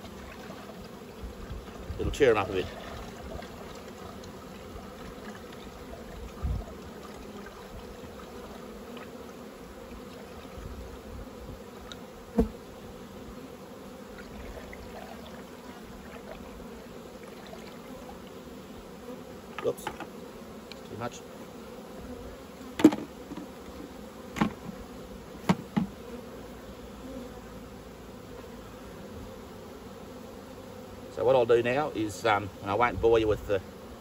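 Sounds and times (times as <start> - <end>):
honeybees humming: 0.0 - 34.0
dull knock: 25.4 - 26.0.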